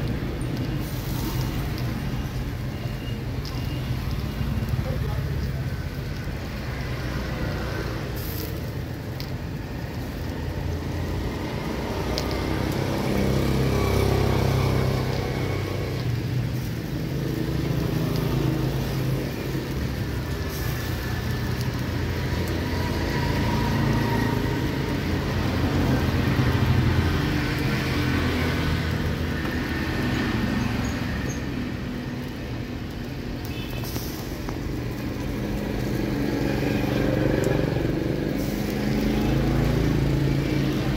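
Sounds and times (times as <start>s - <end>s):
street traffic rumbling past: 0.0s - 40.9s.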